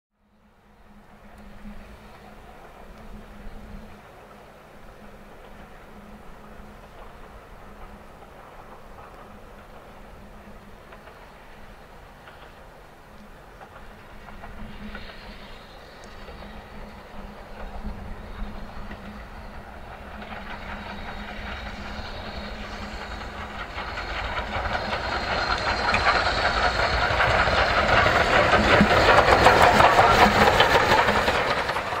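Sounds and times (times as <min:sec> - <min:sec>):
steam locomotive chuffing: 0:00.5 - 0:32.0
steam hiss: 0:00.8 - 0:32.0
wheel clatter: 0:17.6 - 0:32.0.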